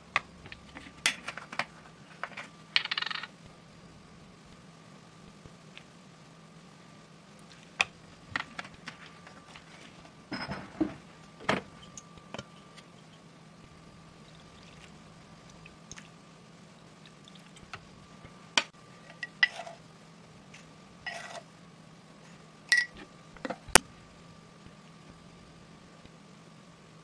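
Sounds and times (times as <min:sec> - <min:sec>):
faint steady hum: 0:00.0 - 0:27.0
dishes clicking and clinking: 0:10.3 - 0:11.0.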